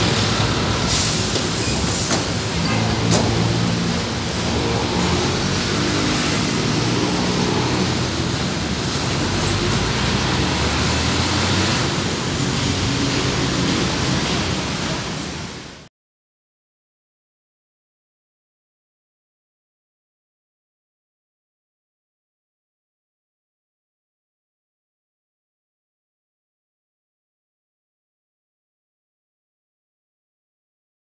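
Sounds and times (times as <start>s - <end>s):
bus engine passing: 0.0s - 15.8s
road traffic: 0.0s - 15.9s.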